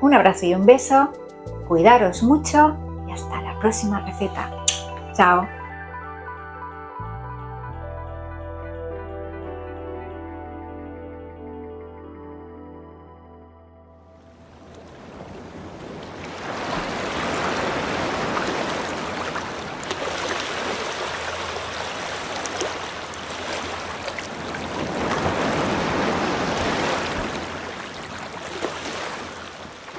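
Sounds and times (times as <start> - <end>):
ocean waves breaking: 14.3 - 29.9.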